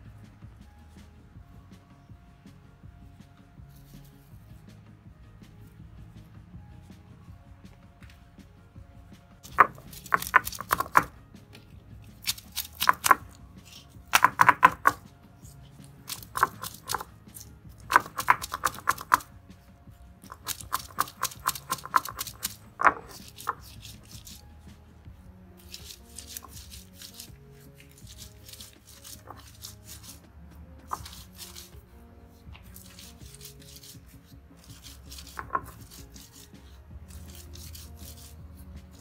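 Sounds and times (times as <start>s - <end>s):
stone roller crushing on grinding stone: 9.4s - 24.7s, 25.6s - 39.0s.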